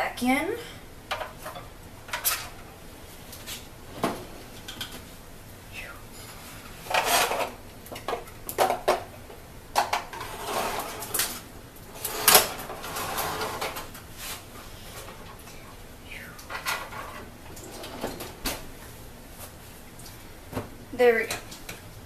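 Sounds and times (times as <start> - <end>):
oven rack and pan clanking: 12.0 - 14.0.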